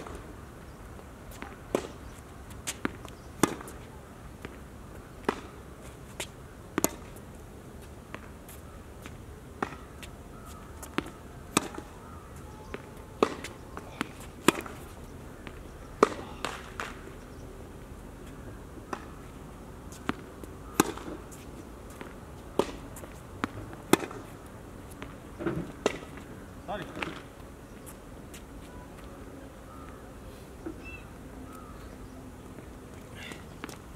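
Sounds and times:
tennis ball pops: 2.7s - 3.8s, 5.2s - 5.6s, 6.8s - 7.1s, 12.7s - 14.8s, 15.4s - 17.0s, 20.0s - 21.2s, 22.5s - 22.8s, 25.8s - 26.1s.

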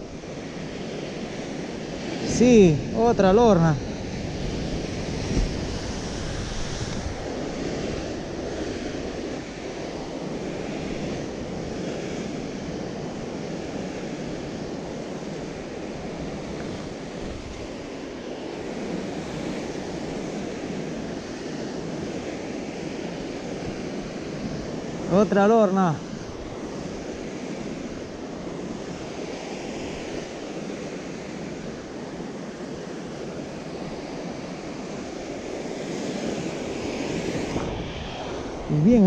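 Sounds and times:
wind buffeting microphone: 0.0s - 17.9s, 33.0s - 39.0s.

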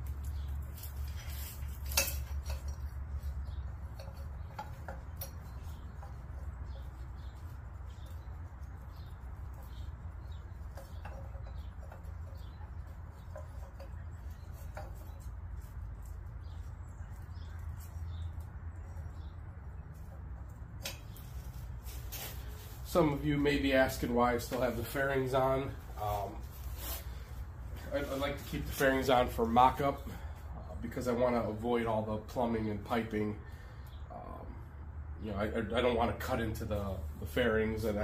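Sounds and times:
steel tubing clicking and scraping: 0.0s - 30.2s.

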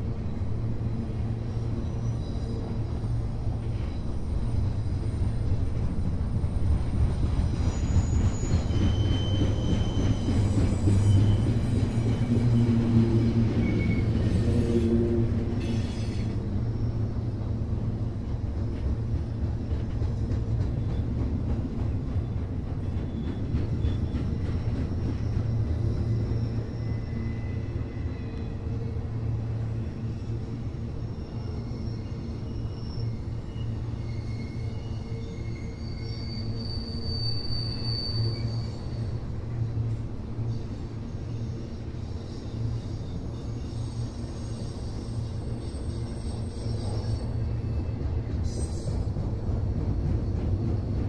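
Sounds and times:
train wheels rumbling on rails: 0.0s - 51.0s
high-pitched wheel squeals: 7.5s - 17.0s, 25.2s - 39.3s, 40.5s - 49.2s.

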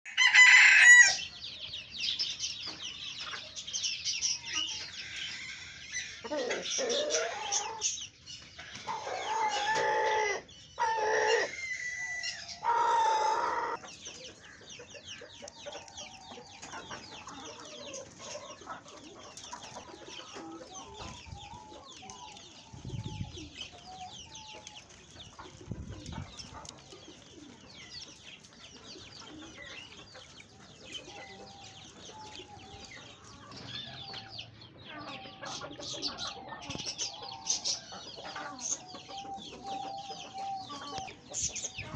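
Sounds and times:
rooster crowing: 0.1s - 1.2s
cage birds chirping: 0.1s - 41.9s.

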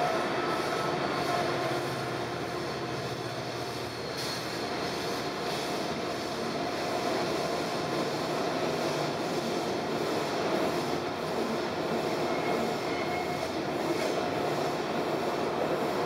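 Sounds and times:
freight train rumble: 0.0s - 16.0s
faint wheel squeal: 3.1s - 5.6s, 12.1s - 13.6s.

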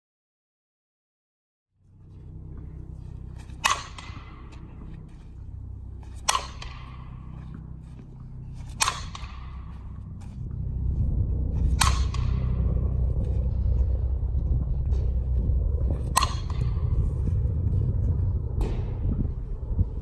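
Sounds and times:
low rumble: 1.8s - 20.0s
bat pinging on ball: 3.2s - 10.3s, 11.7s - 12.6s, 16.1s - 16.8s.

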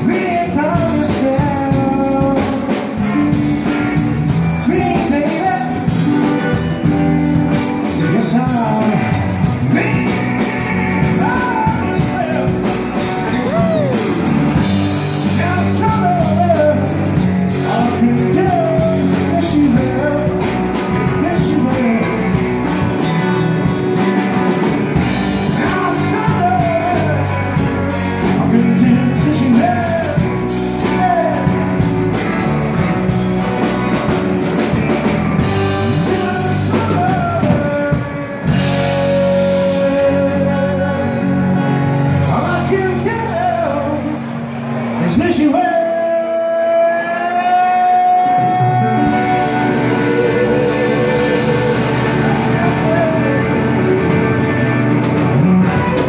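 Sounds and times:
drum kit: 0.0s - 45.6s, 47.3s - 56.0s
man singing: 0.0s - 56.0s
slow blues on electric guitars: 0.0s - 56.0s.

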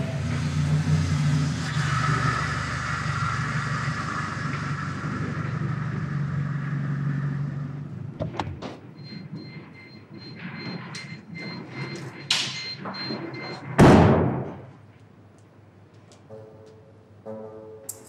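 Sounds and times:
car engine running at low speed: 0.0s - 9.5s.

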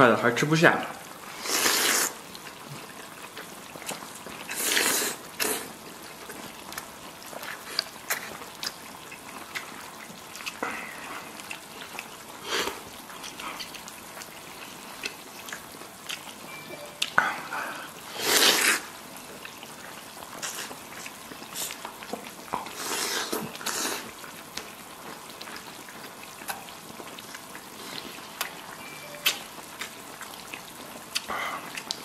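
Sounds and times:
loud slurping: 1.3s - 2.2s, 4.5s - 5.8s, 18.1s - 18.9s, 22.7s - 24.2s
wet chewing: 1.3s - 17.5s, 18.1s - 32.0s.

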